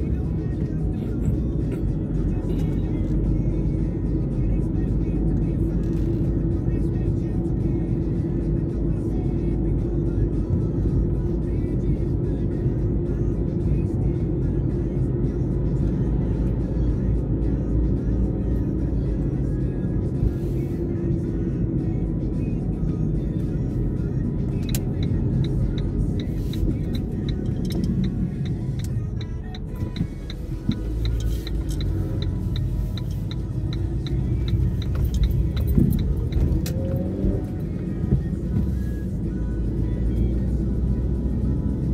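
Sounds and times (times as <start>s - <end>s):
car driving rumble from inside: 0.0s - 41.9s
music playing: 0.0s - 41.9s
turn signal ticking: 23.4s - 40.5s.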